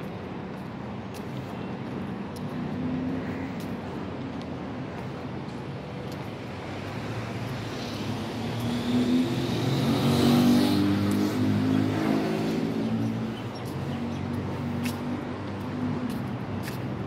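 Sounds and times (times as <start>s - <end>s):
street noise: 0.0s - 17.0s
vehicle engine passing by: 7.6s - 13.2s.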